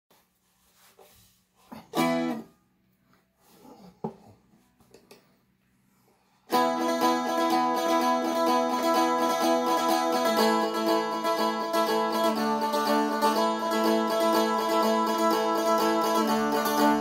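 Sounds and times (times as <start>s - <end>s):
strummed string instrument: 1.7s - 2.6s, 6.5s - 17.0s
faint taps and handling noises: 3.9s - 5.7s.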